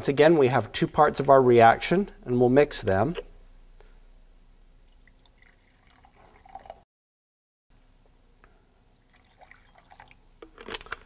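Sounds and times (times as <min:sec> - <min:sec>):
liquid pouring into glass: 0:04.8 - 0:06.8, 0:08.9 - 0:10.2.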